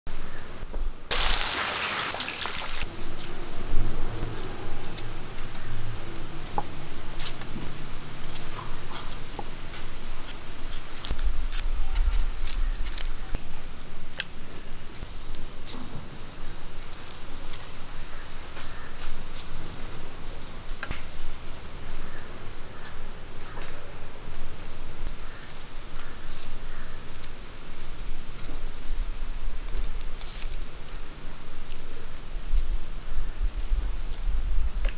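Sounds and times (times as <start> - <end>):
onions sizzling in a pan: 1.1 - 2.9
shallot skins crackling: 1.1 - 20.1, 20.7 - 34.4.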